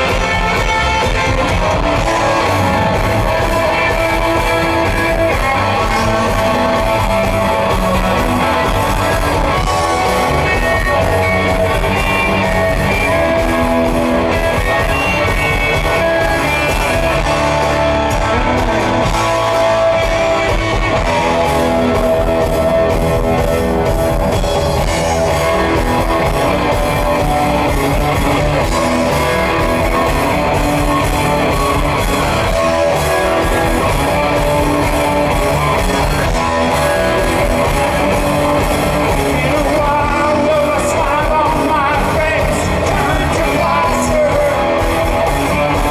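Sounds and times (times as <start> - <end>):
live rock band playing: 0.0 - 45.9
person singing: 32.5 - 45.9.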